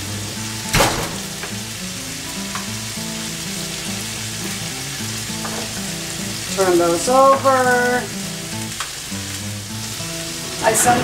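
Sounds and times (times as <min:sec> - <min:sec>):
vegetables sizzling in a skillet: 0:00.0 - 0:11.0
sharp knock: 0:00.7 - 0:01.3.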